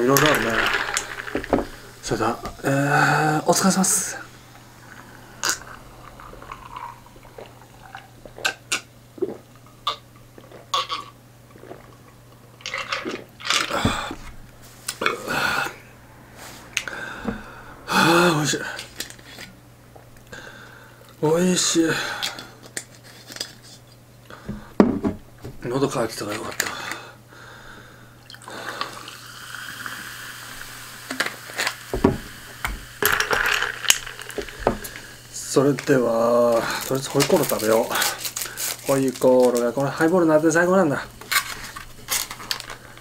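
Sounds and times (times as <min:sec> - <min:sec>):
person drinking and swallowing: 0:00.0 - 0:03.4, 0:04.2 - 0:16.0, 0:16.6 - 0:19.5, 0:30.6 - 0:35.3
sparkling water pouring over ice: 0:00.0 - 0:08.4, 0:28.6 - 0:40.5
fizzing hiss: 0:00.0 - 0:08.7, 0:28.2 - 0:43.0
person breathing out: 0:15.0 - 0:19.0.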